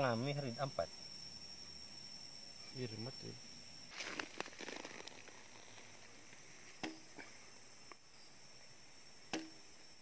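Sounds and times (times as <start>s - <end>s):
insects trilling: 0.0s - 10.0s
sharp snaps against wooden plank: 6.8s - 7.0s, 9.3s - 9.6s.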